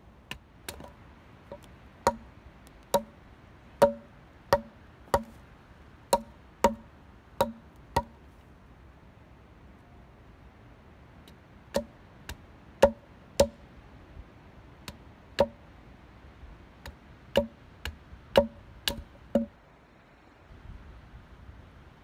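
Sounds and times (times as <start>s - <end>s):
hatchet chopping wood: 0.3s - 0.9s, 1.5s - 3.2s, 3.8s - 5.4s, 6.1s - 8.2s, 11.7s - 13.6s, 14.8s - 15.6s, 16.8s - 19.5s.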